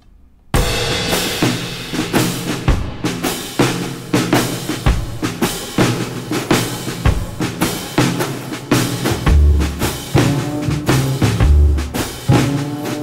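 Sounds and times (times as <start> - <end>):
music with drum kit beat: 0.6 - 13.0.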